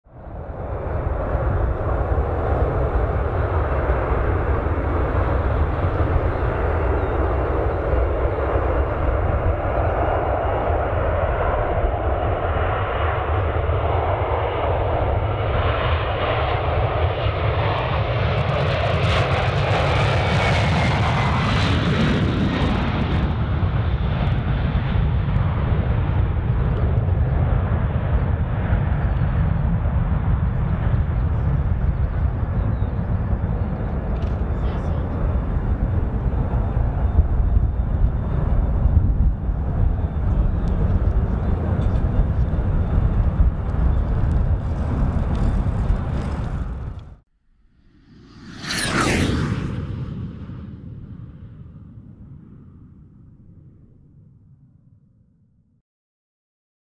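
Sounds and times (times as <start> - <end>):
jet engines roaring: 0.2 - 47.2, 47.8 - 52.5
falling jet whine: 47.7 - 52.2.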